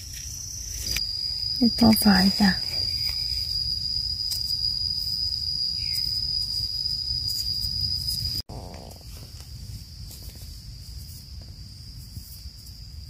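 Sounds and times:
insect drone: 0:00.0 - 0:13.0
low rumble: 0:08.5 - 0:09.8.

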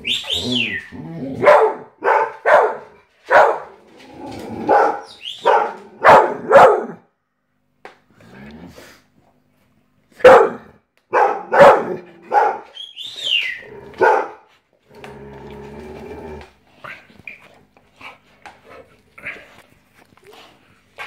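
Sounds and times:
dog squealing: 0:00.0 - 0:01.0
dog barking: 0:01.4 - 0:03.8, 0:04.7 - 0:07.1, 0:10.2 - 0:12.8, 0:14.0 - 0:14.5
dog yipping: 0:04.8 - 0:06.8.

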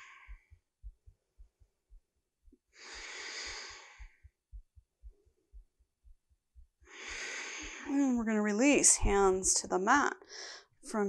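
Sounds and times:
person breathing slowly: 0:00.0 - 0:00.6, 0:02.7 - 0:04.4, 0:06.9 - 0:07.9, 0:10.3 - 0:10.8
faint low thumps: 0:00.0 - 0:02.8, 0:03.6 - 0:07.2.

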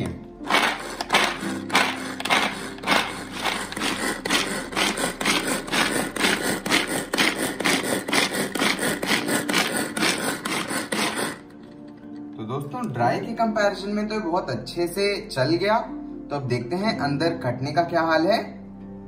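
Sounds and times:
blades chopping almonds: 0:00.0 - 0:12.2
pull-cord chopper cord rasping: 0:00.5 - 0:12.2.

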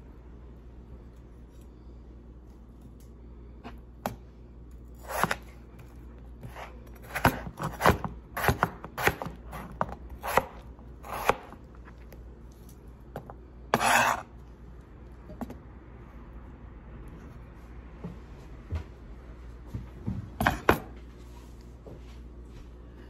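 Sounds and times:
cleaver chopping on cutting board: 0:05.0 - 0:05.4, 0:06.4 - 0:11.6, 0:13.8 - 0:14.2
blade scraping board: 0:05.0 - 0:05.6, 0:13.7 - 0:14.3.

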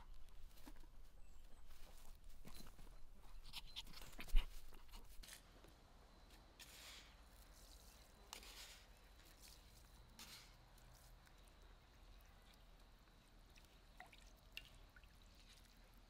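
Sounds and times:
salt trickling into water: 0:06.6 - 0:16.0.

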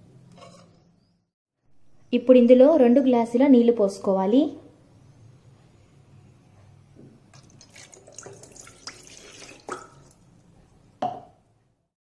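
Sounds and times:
water splashing and dripping: 0:07.4 - 0:10.2.

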